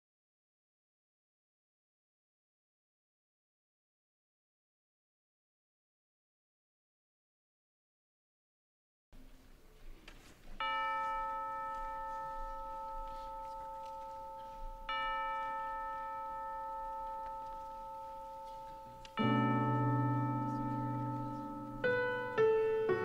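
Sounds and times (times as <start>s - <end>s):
bell-like chime notes: 10.6s - 23.0s.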